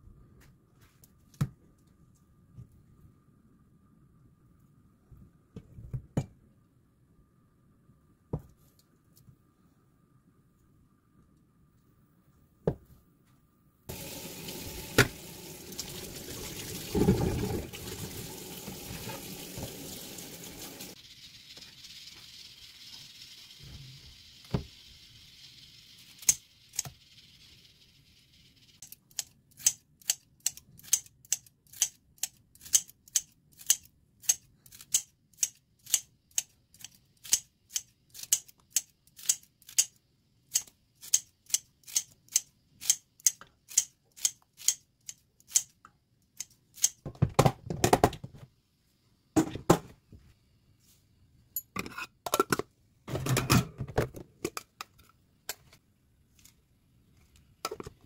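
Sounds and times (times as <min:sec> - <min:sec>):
running water: 0:13.9 - 0:26.3.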